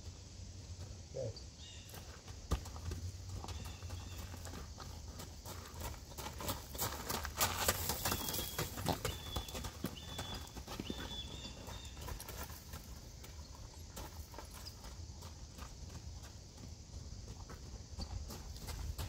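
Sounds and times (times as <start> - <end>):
horse hooves on gravel: 0.0 - 19.0.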